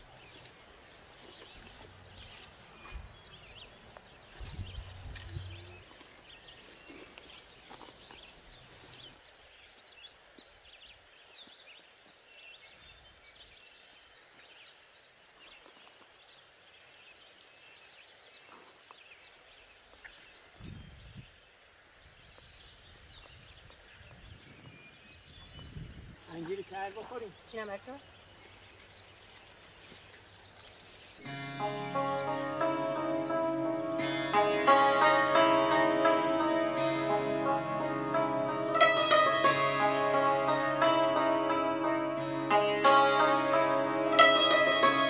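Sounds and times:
rustling and clicking on stony ground: 0:00.0 - 0:10.5, 0:15.4 - 0:20.9, 0:26.2 - 0:31.3
small birds chirping: 0:00.0 - 0:31.3.

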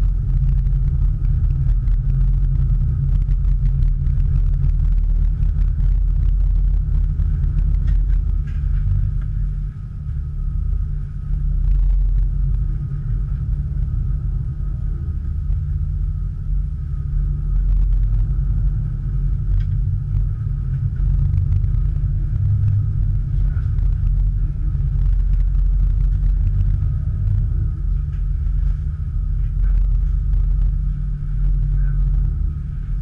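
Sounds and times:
boat engine rumble: 0:00.0 - 0:33.0
faint steady whine: 0:00.0 - 0:33.0.

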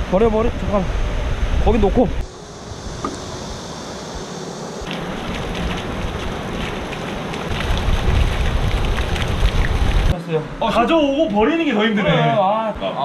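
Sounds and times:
water gushing and splashing: 0:04.8 - 0:10.2.

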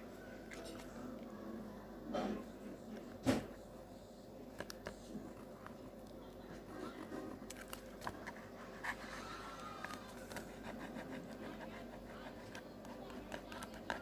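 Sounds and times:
marker scratching on paper: 0:10.3 - 0:14.0.

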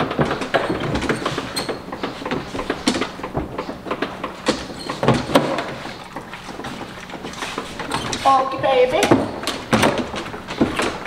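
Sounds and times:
crate doors rattling and latching: 0:06.7 - 0:11.0.

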